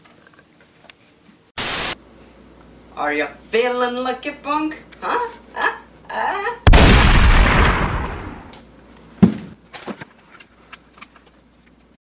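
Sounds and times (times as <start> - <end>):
shotgun blast: 6.7 - 8.5.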